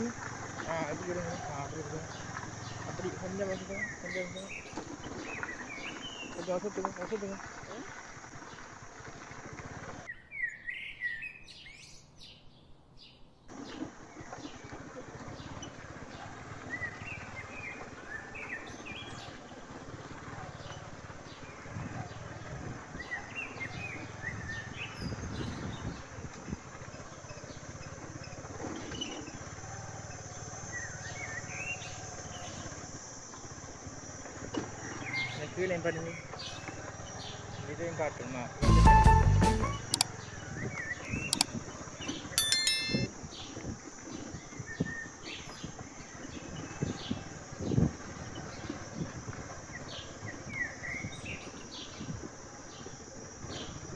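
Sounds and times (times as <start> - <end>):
motorcycle on dirt track: 0.0 - 10.1, 13.5 - 32.8.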